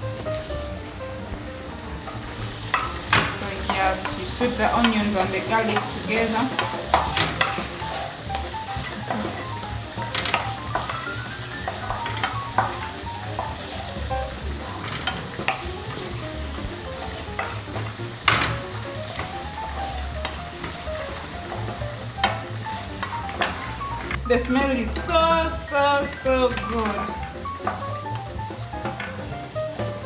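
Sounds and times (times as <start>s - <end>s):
onions sizzling in oil: 0.0s - 30.0s
wooden spoon stirring and scraping: 0.2s - 30.0s
spoon knocking against pan: 2.7s - 13.8s, 17.3s - 19.5s, 26.5s - 28.0s.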